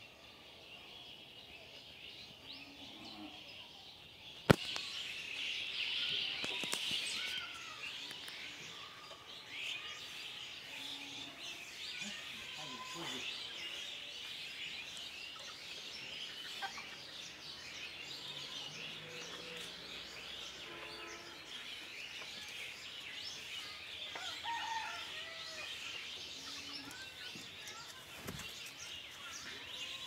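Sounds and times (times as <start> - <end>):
small birds chirping: 0.0 - 30.0
chickens clucking: 16.5 - 17.1.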